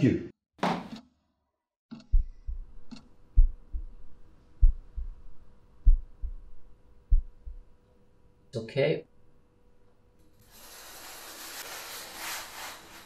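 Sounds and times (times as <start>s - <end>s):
heartbeat through stethoscope: 2.0s - 7.7s
faint steady hum: 2.1s - 10.4s.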